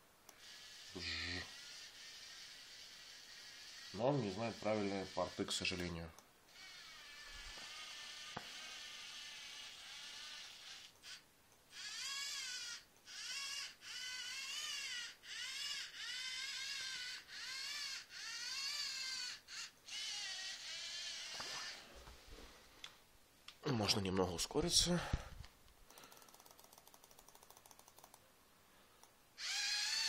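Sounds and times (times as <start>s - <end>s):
servo motors whining: 0.4s - 5.9s, 6.6s - 21.8s, 29.4s - 30.0s.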